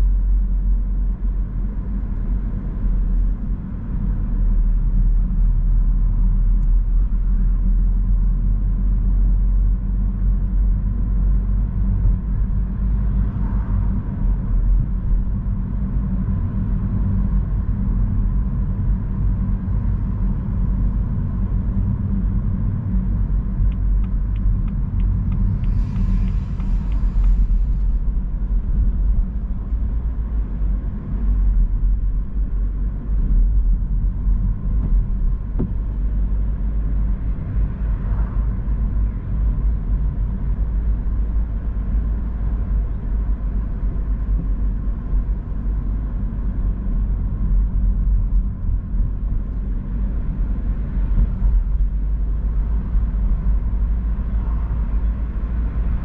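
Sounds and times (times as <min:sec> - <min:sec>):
car on wet road: 0:10.5 - 0:46.7.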